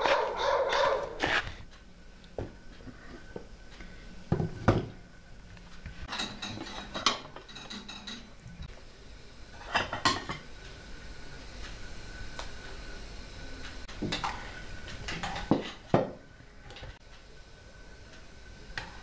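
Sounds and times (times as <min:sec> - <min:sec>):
dishes clinking on a table: 0:06.1 - 0:08.3, 0:09.6 - 0:10.4, 0:15.1 - 0:16.2.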